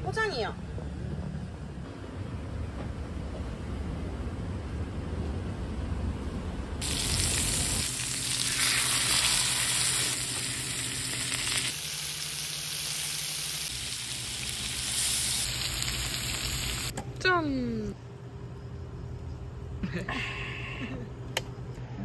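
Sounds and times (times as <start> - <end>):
meat sizzling on a griddle: 6.8 - 16.9.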